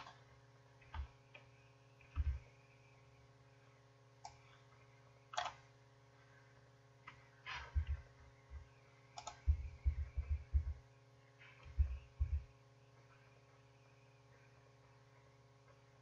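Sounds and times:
faint steady hum: 0.0s - 16.0s
computer mouse clicks: 0.8s - 2.4s, 4.2s - 4.5s, 5.3s - 5.6s, 9.2s - 9.4s
soft low thuds: 2.1s - 2.4s, 7.6s - 8.7s, 9.4s - 10.8s, 11.5s - 12.5s.

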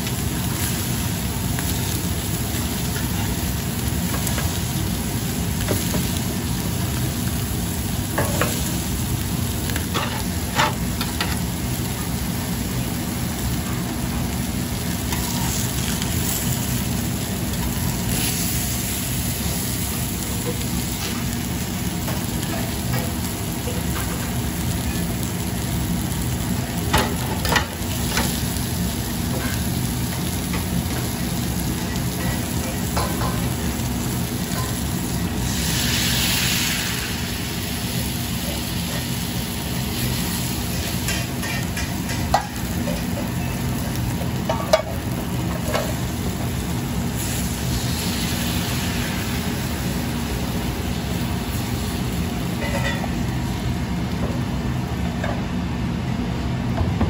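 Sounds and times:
water hissing in hot pan: 0.0s - 55.0s
patties sizzling in frying pans: 0.0s - 56.9s.

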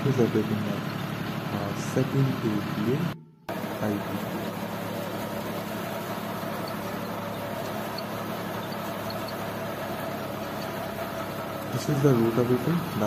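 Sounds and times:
tractor engine under load: 0.0s - 13.0s
rotavator churning soil: 3.5s - 13.0s.

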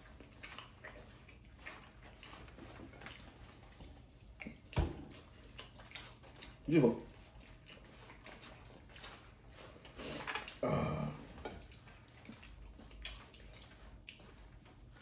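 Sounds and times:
short vocal sound: 10.6s - 11.3s.

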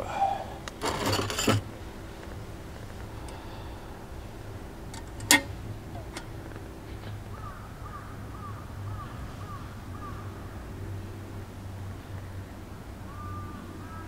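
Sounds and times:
metal pot clink: 0.8s - 1.6s, 5.0s - 6.3s
crow cawing: 7.3s - 10.5s, 13.1s - 14.0s.

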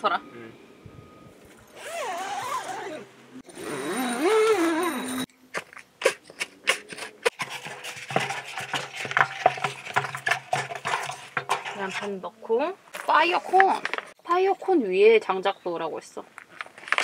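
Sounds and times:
egg carton rustling: 5.5s - 12.2s.

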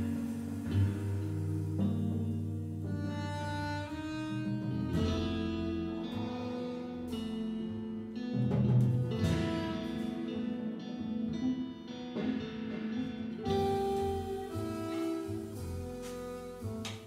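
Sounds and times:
double bass: 0.0s - 17.0s
drums: 0.0s - 17.0s
electric guitar notes: 0.0s - 17.0s.

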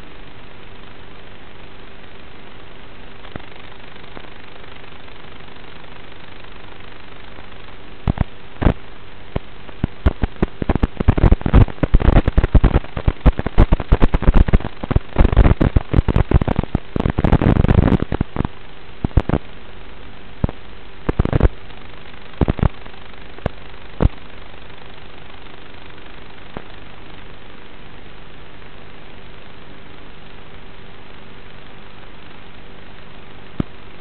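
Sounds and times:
steady hiss: 0.0s - 34.0s
crackling and popping: 3.2s - 4.4s, 6.4s - 19.6s, 20.4s - 27.7s, 31.0s - 33.8s.

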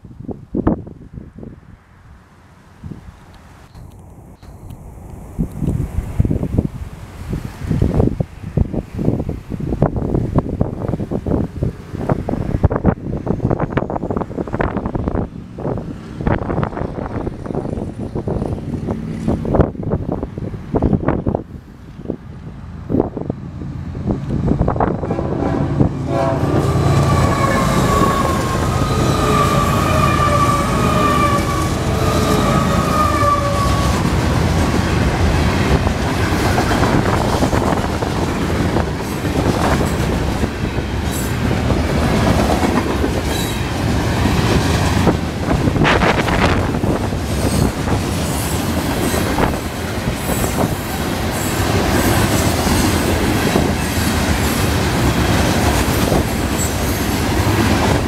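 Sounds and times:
freight train wheels clacking on rails: 24.2s - 58.0s
locomotive horn: 25.0s - 34.2s.

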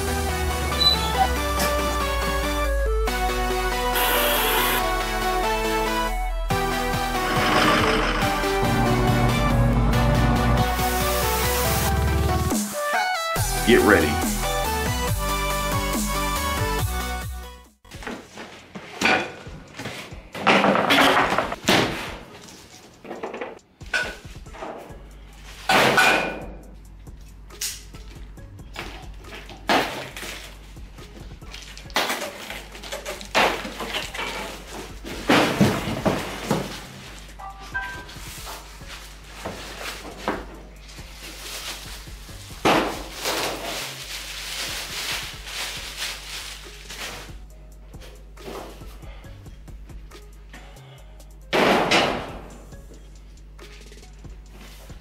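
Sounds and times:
cardboard scraping and rustling: 38.1s - 42.0s
plastic wrap crinkling: 40.8s - 47.4s
plastic wrap ripping: 41.0s - 47.4s.

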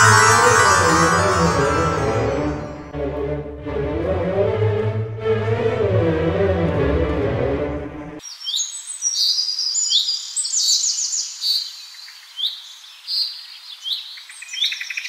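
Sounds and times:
background music: 0.0s - 8.2s.

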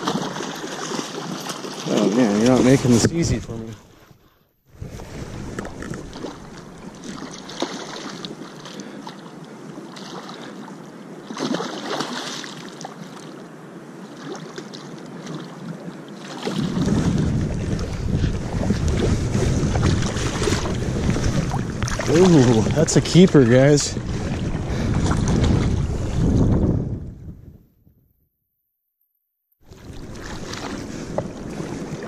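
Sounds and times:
gusty wind on microphone: 4.7s - 7.3s, 16.5s - 28.1s
low wind rumble: 4.7s - 7.6s, 16.5s - 28.0s.

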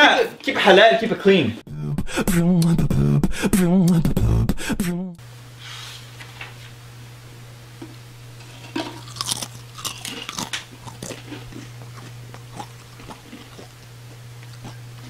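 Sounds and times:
person crunching and chewing food: 8.5s - 15.0s.

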